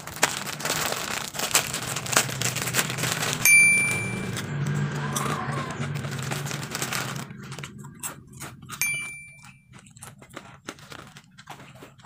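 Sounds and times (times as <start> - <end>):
plastic bag crinkling: 0.0 - 4.4, 6.0 - 7.6
bell-like ding: 3.4 - 4.4, 8.8 - 9.6.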